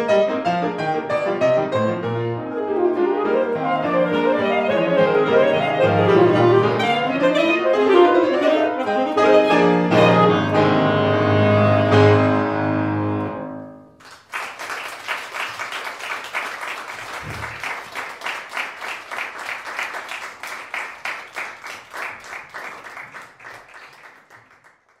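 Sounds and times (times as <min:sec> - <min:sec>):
piano and saxophone chord: 0:00.0 - 0:13.9
audience applauding: 0:14.0 - 0:25.0.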